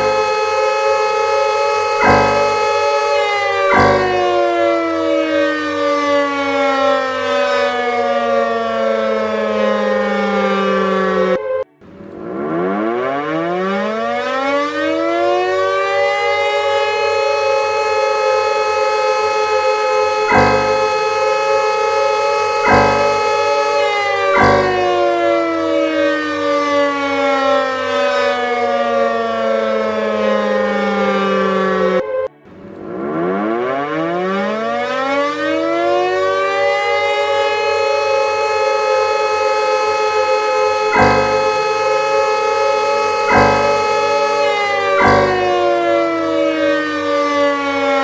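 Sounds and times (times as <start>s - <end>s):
siren winding down: 0.0s - 5.7s, 20.3s - 21.5s, 22.6s - 25.7s, 41.0s - 42.2s, 43.3s - 46.5s
civil defense siren: 0.0s - 48.0s.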